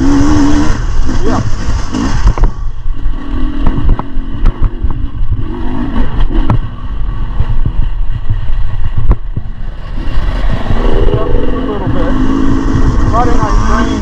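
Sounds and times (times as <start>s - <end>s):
dirt bike engine revving: 0.0s - 4.8s, 9.5s - 14.0s.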